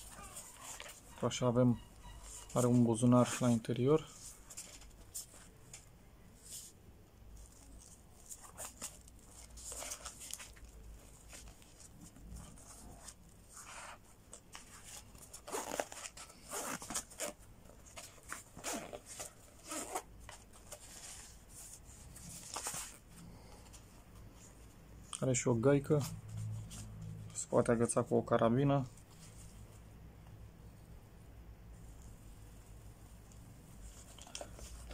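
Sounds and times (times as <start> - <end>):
fabric rustling: 0.0 - 25.2, 31.7 - 34.9
zippers being worked: 15.4 - 17.4, 18.6 - 20.1.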